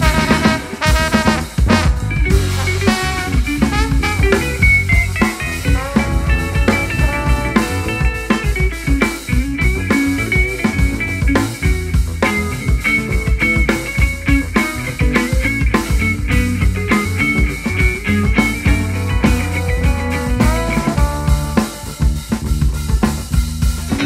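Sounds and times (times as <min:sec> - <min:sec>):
jazz-fusion band playing: 0:00.0 - 0:24.0.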